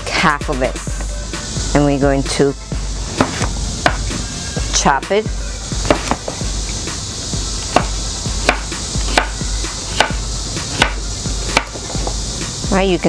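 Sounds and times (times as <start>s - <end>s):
knife chopping on wooden board: 3.2s - 4.1s, 5.8s - 6.4s, 7.7s - 12.2s.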